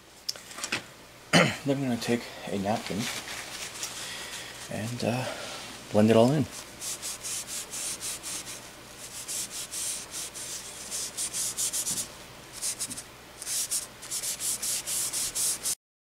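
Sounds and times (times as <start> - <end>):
paper napkin rubbing on paper: 6.4 - 15.8.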